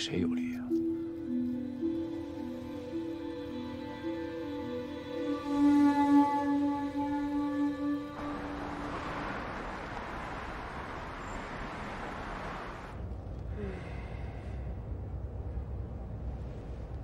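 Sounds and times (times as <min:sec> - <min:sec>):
street traffic passing: 0:07.2 - 0:13.5
road noise inside a car: 0:08.2 - 0:13.8.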